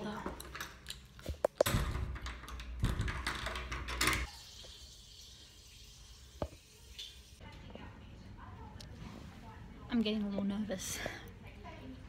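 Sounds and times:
water running: 4.2s - 7.4s.

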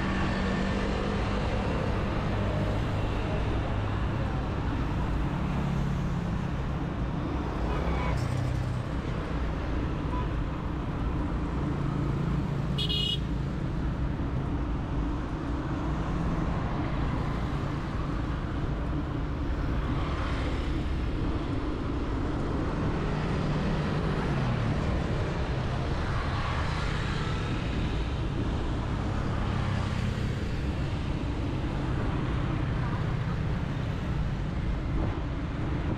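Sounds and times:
car horn toot: 12.8s - 13.2s.

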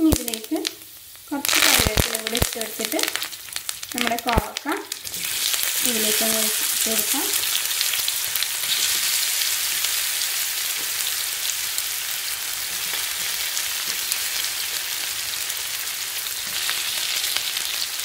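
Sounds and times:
food sizzling in hot oil: 0.0s - 18.0s.

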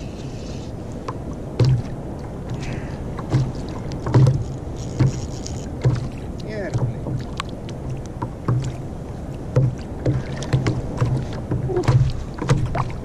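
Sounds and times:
water lapping against kayak hull: 0.0s - 13.0s
light clicks and knocks: 3.2s - 8.8s.

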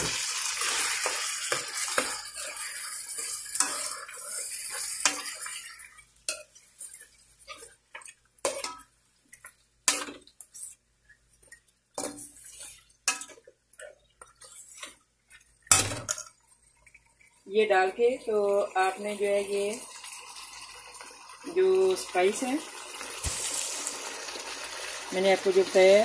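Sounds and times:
meat sizzling in pan: 0.0s - 10.8s, 17.2s - 26.0s
metal spoon scraping pan: 0.6s - 8.9s, 12.0s - 15.0s.

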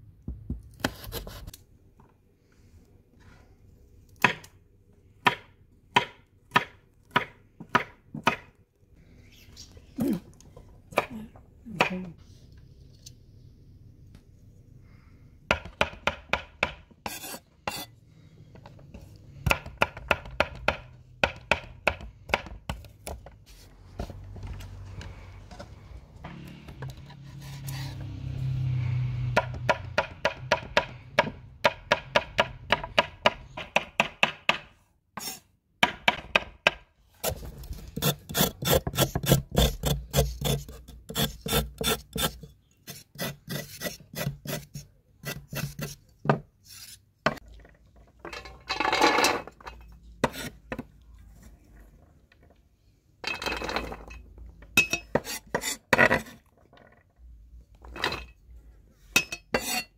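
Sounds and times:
knife chopping on wooden board: 5.2s - 8.5s
blade rasping across board: 17.0s - 17.9s, 35.2s - 35.5s, 37.2s - 47.0s.

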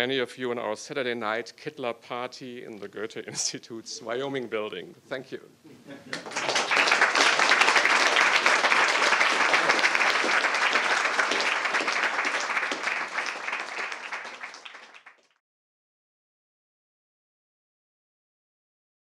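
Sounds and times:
audience applauding: 6.1s - 15.4s.

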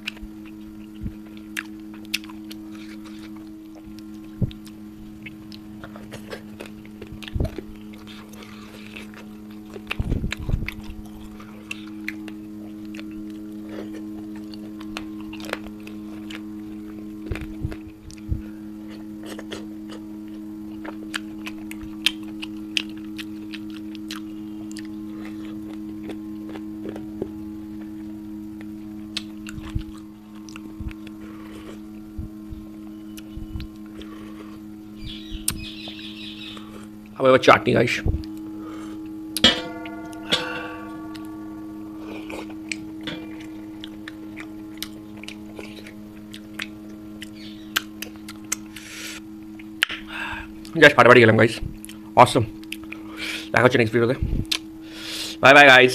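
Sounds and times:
lip smacks and chewing: 0.0s - 18.3s, 20.7s - 27.0s, 29.1s - 31.8s, 43.8s - 48.9s, 52.6s - 53.0s, 54.4s - 54.6s
steady low hum: 0.0s - 55.9s
short ringing tones: 38.4s - 47.8s.

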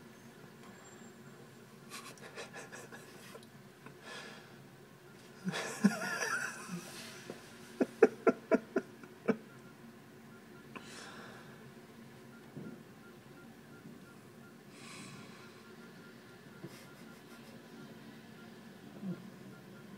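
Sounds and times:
person laughing: 2.0s - 3.4s, 5.4s - 9.5s.

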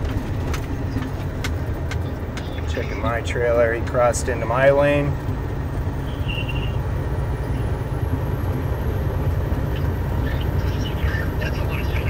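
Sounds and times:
truck rumbling at highway speed: 0.0s - 12.0s.

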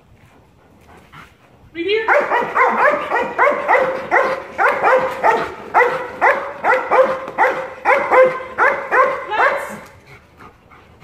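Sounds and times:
dog barking fast and high-pitched: 2.1s - 9.8s.

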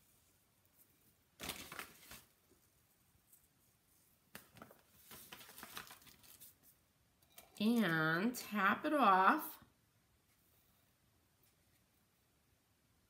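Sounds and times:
plastic bag crinkling: 5.0s - 6.6s.

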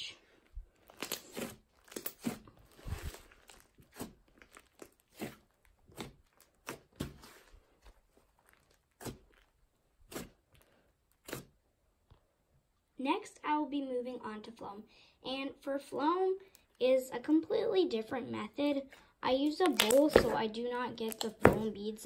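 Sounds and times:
slime crackling and popping: 0.7s - 11.6s, 19.5s - 20.4s, 21.0s - 21.6s.

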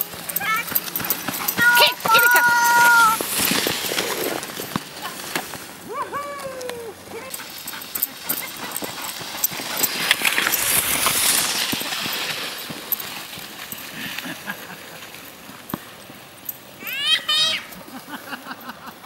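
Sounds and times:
sled runners and feet on snow: 0.0s - 19.0s.

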